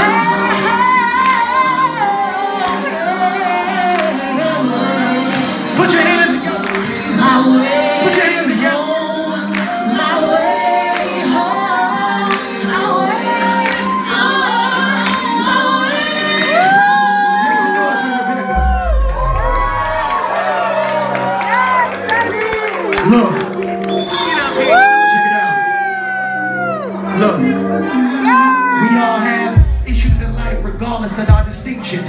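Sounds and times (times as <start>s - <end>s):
woman singing into a microphone: 0.0s - 17.4s
backing track with slow beat: 18.5s - 20.2s, 29.5s - 32.0s.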